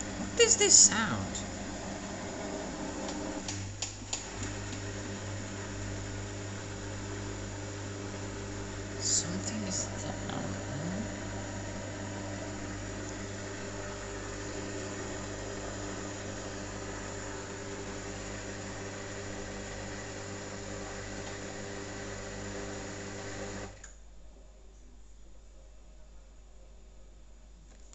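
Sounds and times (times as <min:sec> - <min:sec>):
washing machine spinning: 0:00.0 - 0:23.8.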